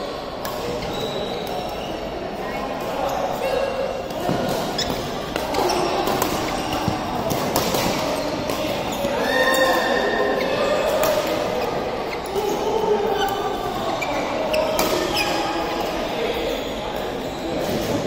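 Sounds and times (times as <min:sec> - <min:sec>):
shoes squeaking on court floor: 0:00.0 - 0:18.0
rackets striking shuttlecock: 0:04.1 - 0:09.1, 0:10.8 - 0:11.8.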